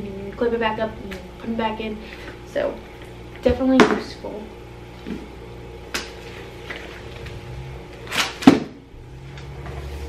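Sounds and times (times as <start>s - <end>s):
low room hum: 0.0s - 10.0s
packages handled in vinyl pool: 5.9s - 8.5s.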